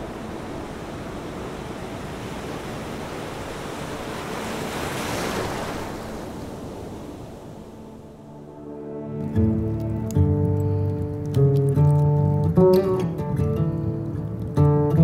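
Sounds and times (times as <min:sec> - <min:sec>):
surf washing on shore: 0:00.0 - 0:08.6
wind: 0:00.0 - 0:15.0.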